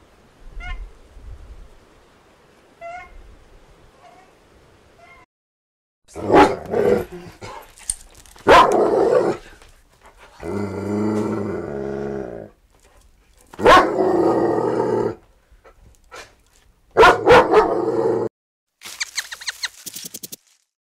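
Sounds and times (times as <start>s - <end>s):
dog growling: 6.1s - 7.6s, 10.4s - 12.6s
dog barking: 6.2s - 7.6s, 8.4s - 9.4s, 13.6s - 14.0s, 16.9s - 17.9s.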